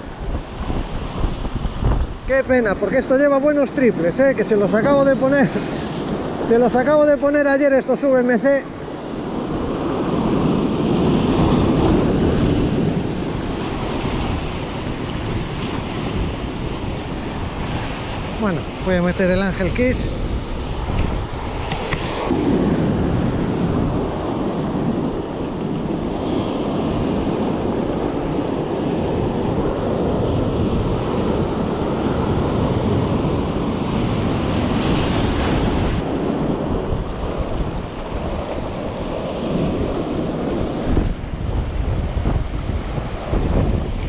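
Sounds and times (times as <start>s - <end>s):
wind buffeting microphone: 0.0s - 7.5s, 8.4s - 44.0s
surf breaking over rocks: 9.7s - 44.0s.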